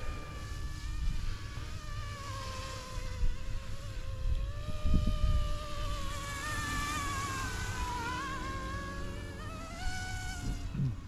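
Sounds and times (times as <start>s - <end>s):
rc helicopter motor whine: 0.0s - 11.0s
wind buffeting microphone: 2.9s - 8.1s.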